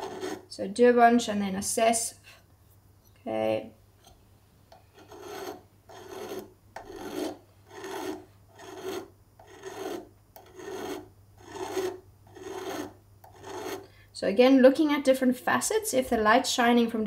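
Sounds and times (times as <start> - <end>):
metal file rasping on metal: 0.0 - 0.5, 5.0 - 13.9.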